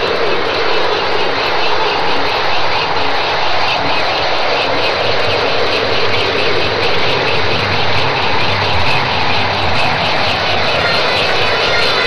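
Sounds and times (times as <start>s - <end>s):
loud steady noise: 0.0s - 12.0s.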